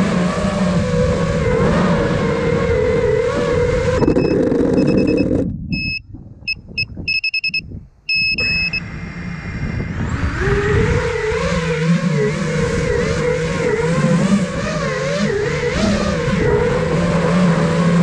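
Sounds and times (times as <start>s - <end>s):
drone motors whining: 0.0s - 6.0s, 6.8s - 18.0s
short high electronic beeps: 4.0s - 8.8s.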